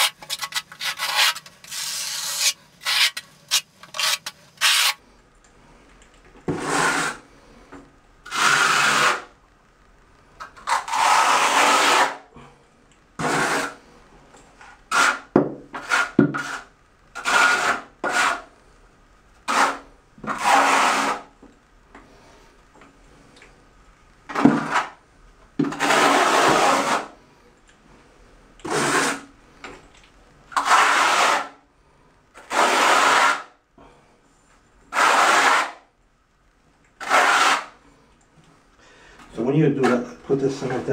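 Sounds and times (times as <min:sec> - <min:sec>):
trowel scraping tile cement: 0:00.0 - 0:05.0, 0:06.5 - 0:07.2, 0:08.3 - 0:09.3, 0:10.6 - 0:12.2, 0:13.2 - 0:13.8, 0:14.6 - 0:18.4, 0:19.5 - 0:21.3, 0:24.3 - 0:25.0, 0:25.6 - 0:27.2, 0:28.6 - 0:29.3, 0:30.5 - 0:31.5, 0:32.4 - 0:33.5, 0:34.9 - 0:35.8, 0:37.0 - 0:37.8.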